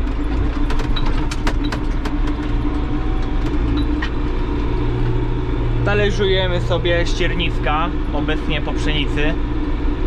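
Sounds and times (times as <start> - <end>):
sharp clicks and rattles: 0.0 - 4.4
tractor engine under load: 0.0 - 10.0.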